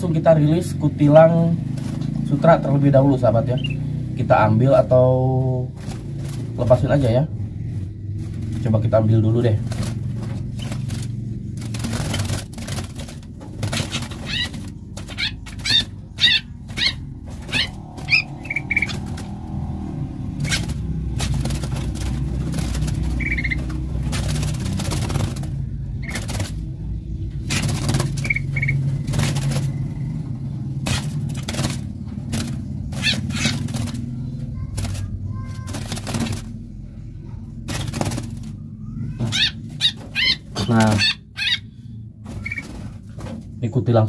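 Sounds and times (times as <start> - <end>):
steady low hum: 0.0 - 44.0
wire cage rattling: 1.0 - 4.2, 5.0 - 41.6
bird chirps: 3.4 - 4.1, 13.6 - 36.4, 37.7 - 42.9.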